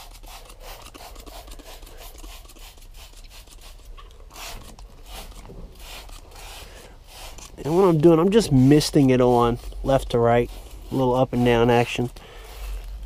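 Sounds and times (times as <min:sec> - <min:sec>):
spray bottle hissing squirts: 0:00.0 - 0:07.8
gloved hands rustling: 0:00.0 - 0:13.0.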